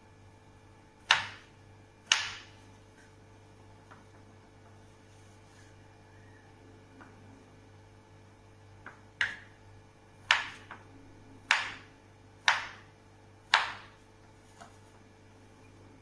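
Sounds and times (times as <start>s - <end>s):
knife striking wooden cutting board: 10.3s - 10.8s.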